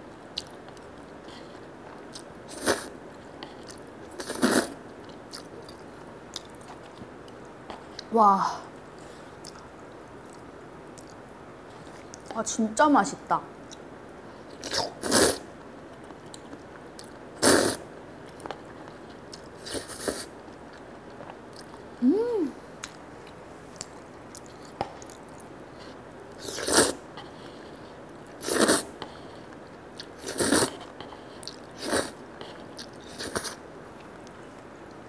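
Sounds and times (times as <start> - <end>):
person slurping noodles: 2.5 - 2.9, 4.2 - 4.8, 14.6 - 15.4, 17.4 - 17.8, 26.4 - 27.0, 28.4 - 28.9, 30.2 - 30.8, 31.4 - 32.2
chewing: 3.2 - 8.1, 9.4 - 12.3, 22.8 - 34.4.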